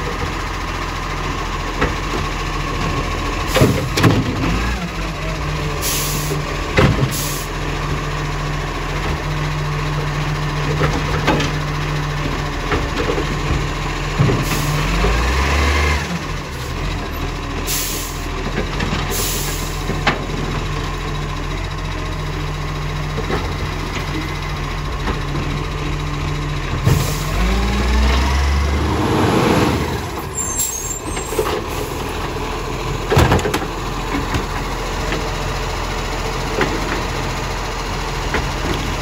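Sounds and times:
garbage truck engine idling: 16.2s - 28.8s, 29.9s - 39.0s.

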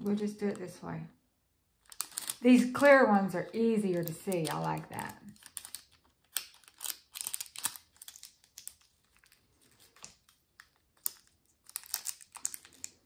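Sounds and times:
foil crinkling and clicking: 1.8s - 2.7s, 3.9s - 13.0s.

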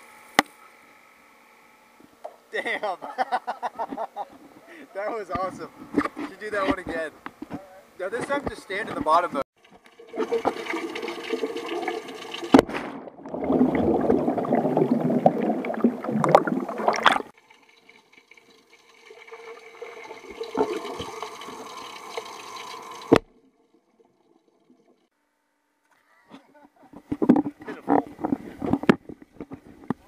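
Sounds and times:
underwater bubbling and churning: 9.6s - 25.1s
air cannon firing underwater: 11.8s - 17.3s.

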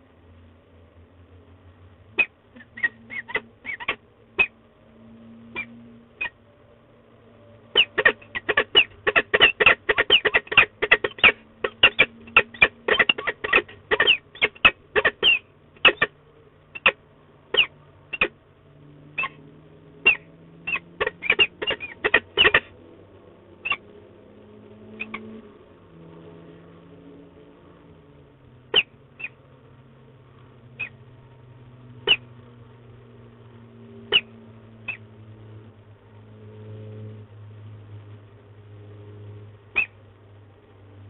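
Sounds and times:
falcon calling: 2.1s - 4.6s, 5.5s - 6.4s, 7.7s - 18.4s, 19.2s - 19.4s, 20.0s - 22.8s, 23.6s - 23.8s, 25.0s - 25.2s, 28.7s - 29.4s, 30.8s - 31.0s, 32.0s - 32.3s, 34.1s - 35.1s, 39.8s - 40.0s.

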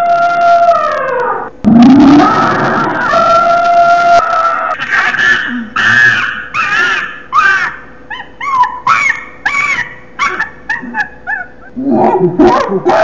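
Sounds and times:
animal yipping and whimpering: 3.1s - 12.2s.

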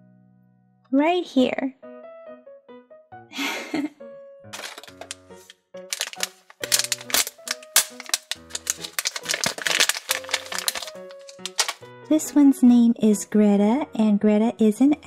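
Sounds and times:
light background music: 0.9s - 15.0s
foil bag crinkling: 4.6s - 11.8s.

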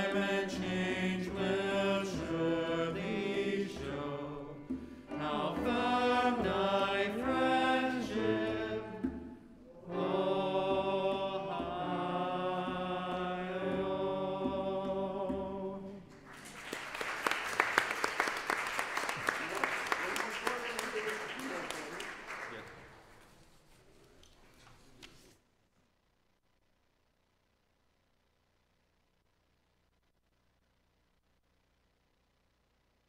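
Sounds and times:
group singing a hymn: 0.0s - 16.2s
applause: 16.1s - 23.3s.

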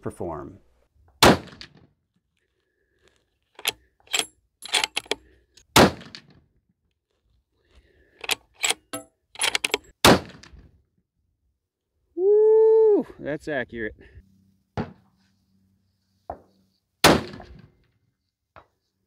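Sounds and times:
rifle shots: 1.2s - 1.8s, 5.8s - 6.2s, 9.4s - 10.5s, 17.0s - 17.6s
rifle bolt clicking: 3.6s - 5.2s, 8.2s - 9.9s.

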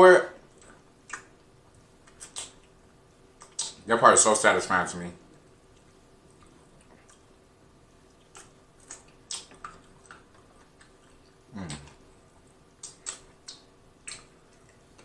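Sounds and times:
wet lip smacks: 2.0s - 2.8s, 3.4s - 3.8s, 8.1s - 12.0s, 12.8s - 14.8s
sucking and chewing clicks: 8.1s - 12.0s, 12.8s - 15.0s
person humming mm of enjoyment: 11.5s - 12.0s.

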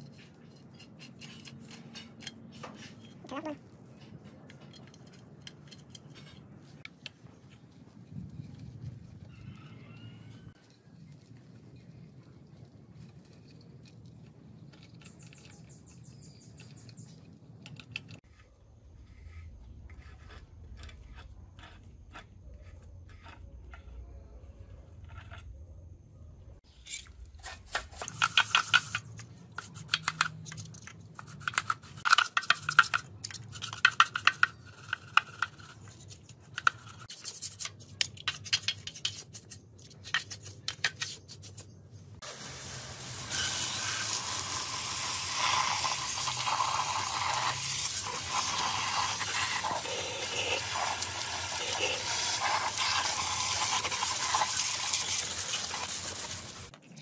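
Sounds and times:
pressure washer jet spraying: 42.2s - 56.7s
brush scrubbing metal casing: 42.6s - 56.7s.

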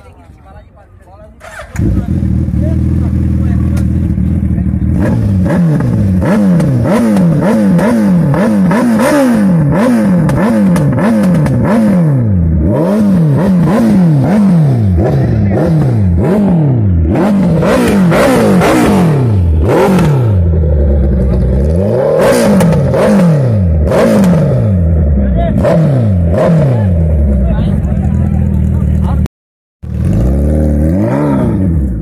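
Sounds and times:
motorcycle engine idling: 1.4s - 5.4s, 27.0s - 29.2s
motorcycle engine revving: 1.4s - 32.0s.

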